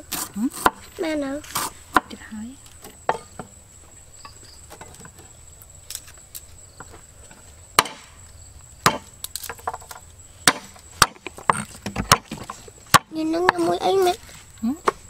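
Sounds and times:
cleaver chopping on wooden board: 0.1 - 0.8, 7.8 - 8.1, 8.8 - 9.1, 10.4 - 13.6.

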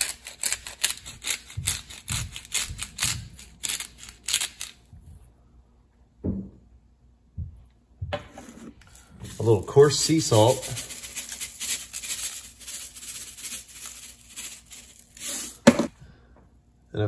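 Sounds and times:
pepper grinder crunching and clicking: 0.0 - 4.8.

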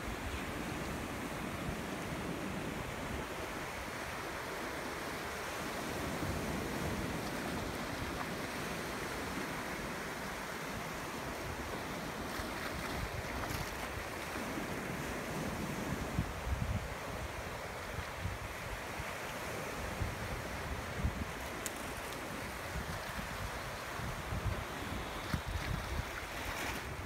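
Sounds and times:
sea surf breaking on beach: 0.0 - 27.0
wind rumbling on microphone: 0.0 - 27.0.

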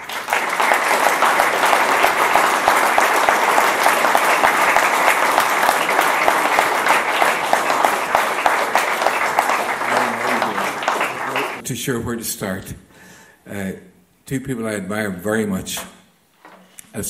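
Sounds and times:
audience applauding: 0.0 - 11.6.

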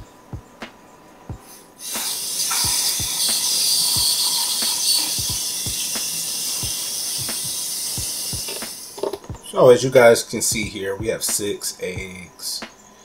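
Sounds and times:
water running from a sink tap: 1.8 - 9.2.

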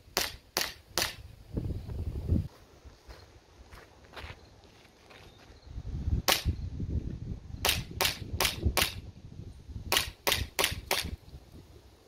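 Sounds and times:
airsoft pistol shots: 0.2 - 1.2, 6.3 - 6.5, 7.6 - 9.0, 9.9 - 11.2.

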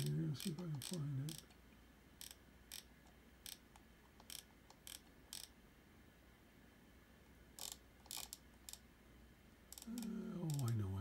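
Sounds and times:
computer mouse clicking: 0.0 - 1.6, 2.2 - 5.6, 7.6 - 8.8.

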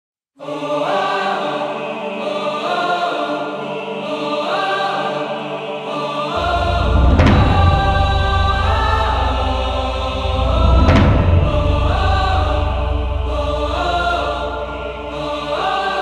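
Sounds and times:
heavy deep bass: 6.4 - 15.8
orchestral music with held chords: 6.4 - 16.0.

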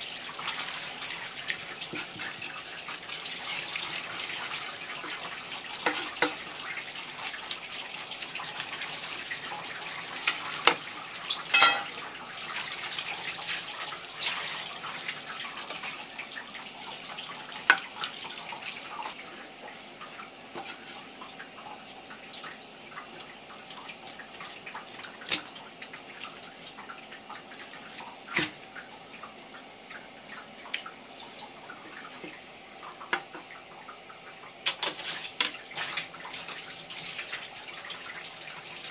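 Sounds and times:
tap water running: 0.0 - 38.9.

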